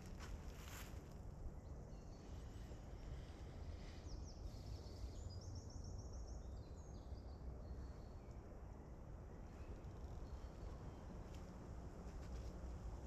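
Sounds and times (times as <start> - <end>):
small birds singing: 1.6 - 11.7.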